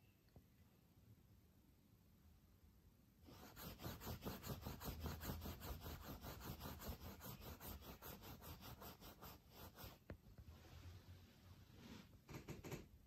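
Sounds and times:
rapid rhythmic scratching: 0:03.3 - 0:10.0.

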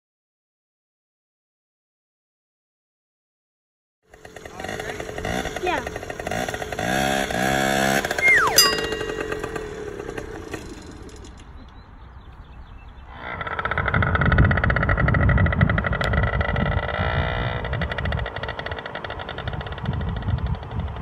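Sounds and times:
small engine revving and puttering: 0:04.1 - 0:11.8, 0:13.0 - 0:21.0.

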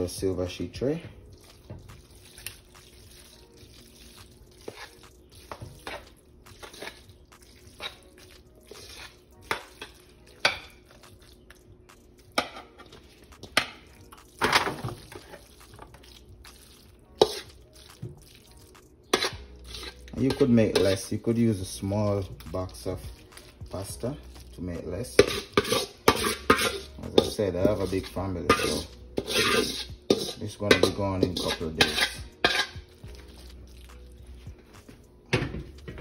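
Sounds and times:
wet plops of pasta: 0:01.3 - 0:19.8
fork scraping metal bowl: 0:05.8 - 0:07.0, 0:08.7 - 0:10.6, 0:17.2 - 0:17.6, 0:19.1 - 0:21.0, 0:25.2 - 0:33.5.

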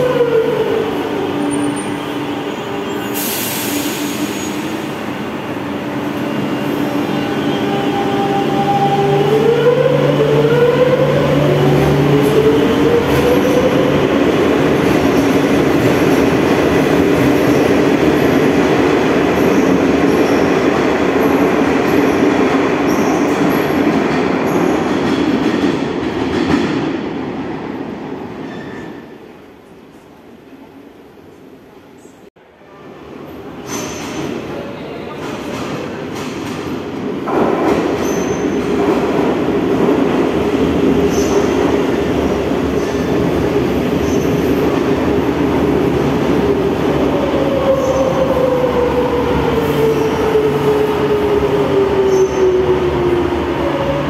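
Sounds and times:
air hiss burst: 0:03.1 - 0:04.8.

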